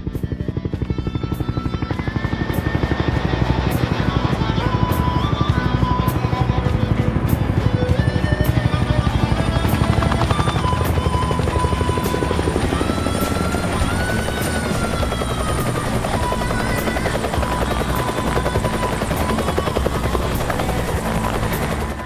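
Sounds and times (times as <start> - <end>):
helicopter rotor beating: 0.0 - 22.0
music: 0.0 - 22.0.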